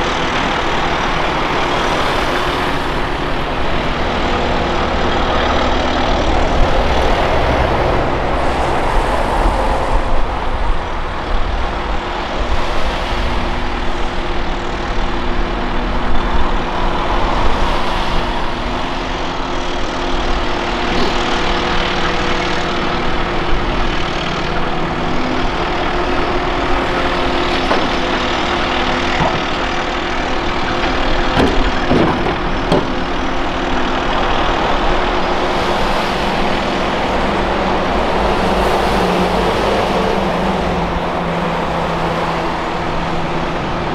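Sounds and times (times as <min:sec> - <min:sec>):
diesel engines running: 0:00.0 - 0:43.9
excavator digging dirt and rocks: 0:12.2 - 0:40.0
sharp knocks: 0:27.5 - 0:29.9, 0:30.8 - 0:33.1.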